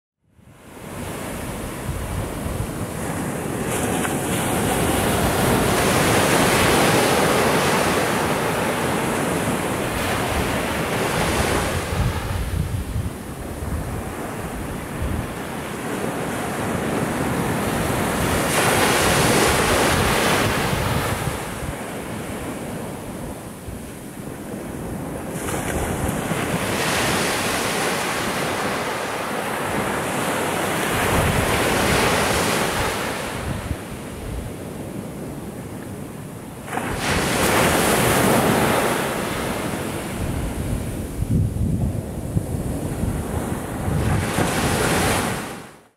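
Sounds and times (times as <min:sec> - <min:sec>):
surf washing up beach: 0:00.4 - 0:45.9
wind buffeting microphone: 0:00.8 - 0:35.3, 0:36.7 - 0:45.6.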